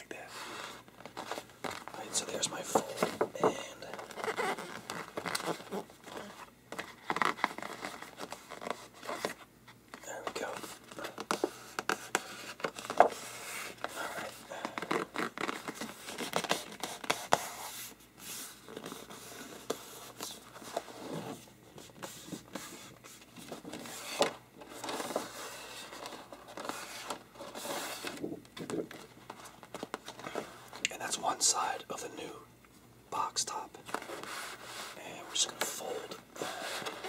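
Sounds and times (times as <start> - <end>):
posterboard crinkling: 0.3 - 9.4, 10.0 - 30.8
hands rubbing posterboard: 34.0 - 35.1.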